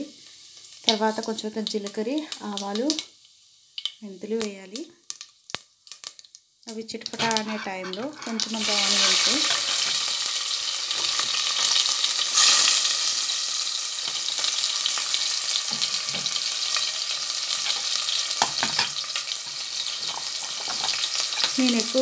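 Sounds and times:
spices sizzling in hot oil: 0.0s - 22.0s.

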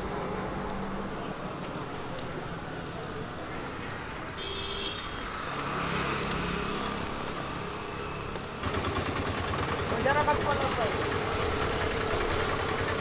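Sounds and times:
passing vehicles: 0.0s - 13.0s
close engine throbbing: 8.6s - 13.0s.

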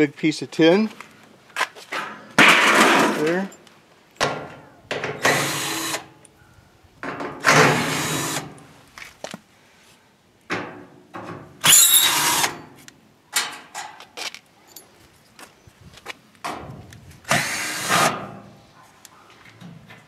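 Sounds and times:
cordless drill whirring: 5.2s - 6.0s, 7.7s - 8.5s, 11.7s - 12.5s, 17.3s - 18.1s.

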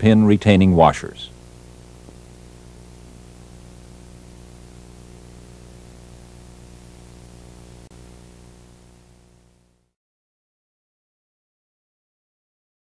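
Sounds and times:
steady hiss: 0.0s - 9.9s
low electrical hum: 0.0s - 10.0s.

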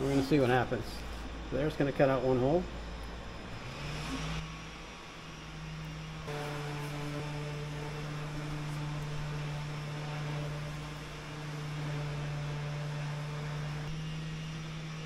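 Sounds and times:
electrical hum with hiss: 0.0s - 15.0s.

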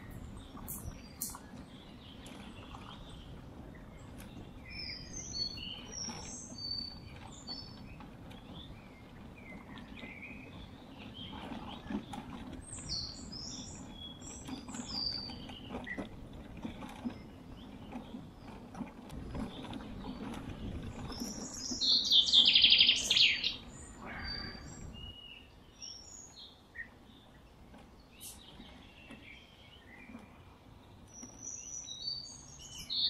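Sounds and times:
small birds chirping: 0.0s - 16.1s, 16.7s - 33.0s
tyres rolling over gravel: 1.5s - 24.7s.

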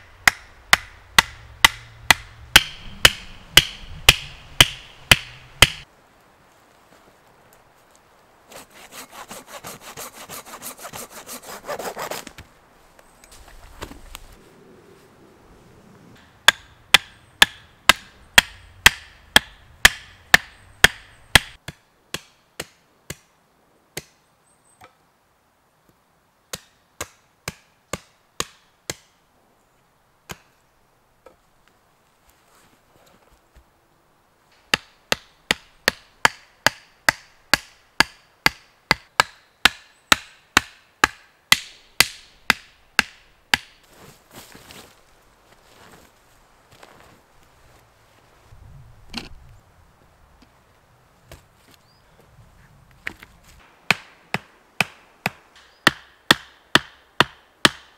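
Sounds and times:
hatchet chopping wood: 0.2s - 5.8s, 16.4s - 23.3s, 26.5s - 29.1s, 34.7s - 43.8s, 53.9s - 57.9s.

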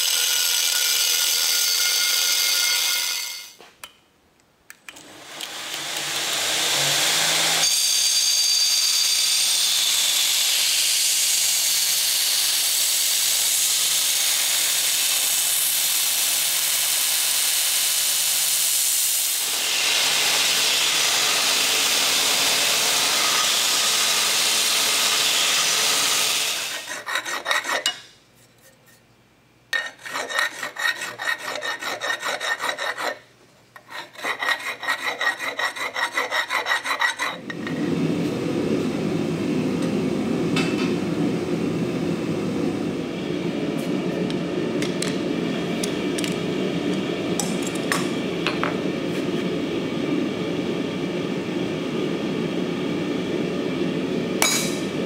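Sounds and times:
belt grinder grinding steel: 0.0s - 3.6s, 29.8s - 33.2s, 33.8s - 37.4s
hand file on steel edge: 26.6s - 29.0s, 29.8s - 33.2s, 33.8s - 37.4s.

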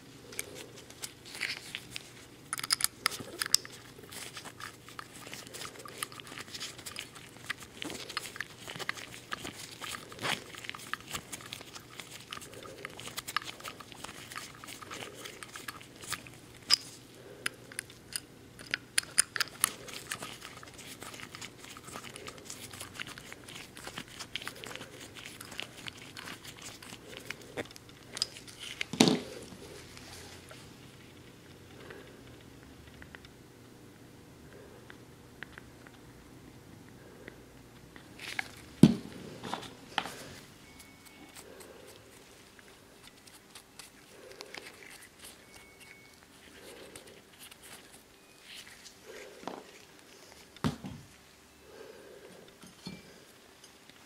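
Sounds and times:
glove rubbing: 3.1s - 17.4s, 38.2s - 50.6s.

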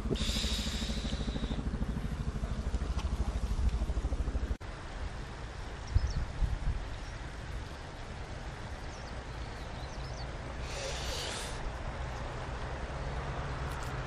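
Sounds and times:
low outdoor rumble: 0.0s - 14.0s
short hiss: 10.6s - 11.6s.

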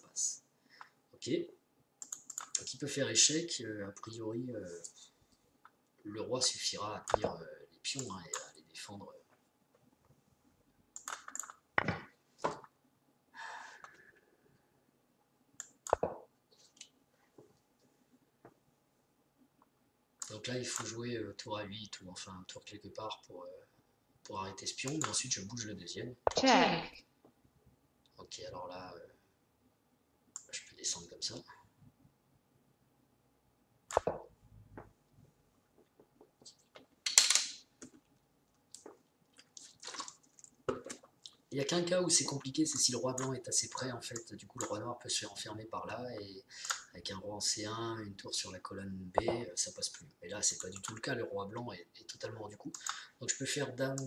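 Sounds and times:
small clicks: 2.0s - 2.7s
chess pieces clicking on board: 37.1s - 38.0s.

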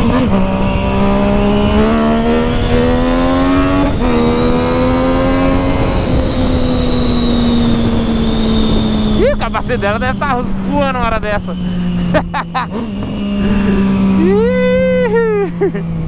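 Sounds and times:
wind rushing: 0.0s - 12.1s
motorcycle engine accelerating: 0.0s - 16.0s.

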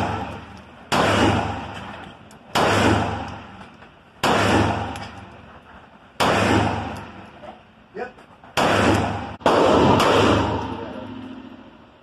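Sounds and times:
pistol shots echoing: 0.0s - 3.6s, 4.2s - 5.3s, 6.2s - 7.2s, 8.6s - 10.9s.

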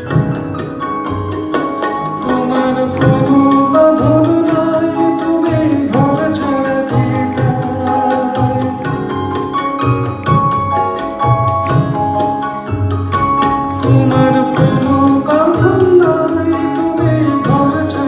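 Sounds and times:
keyboard: 0.0s - 18.0s
tabla strokes: 0.0s - 18.0s.

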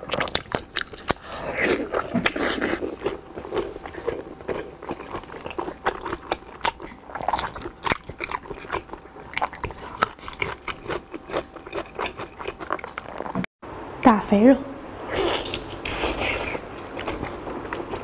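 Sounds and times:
mouth chewing wetly: 0.0s - 13.4s.

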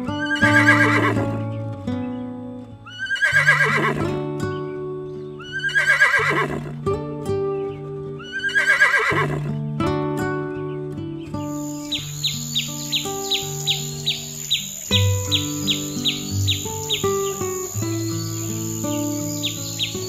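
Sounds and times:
background music with held notes: 0.0s - 20.0s
horse whinnying: 0.2s - 1.4s, 2.9s - 4.1s, 5.4s - 6.7s, 8.3s - 9.5s.

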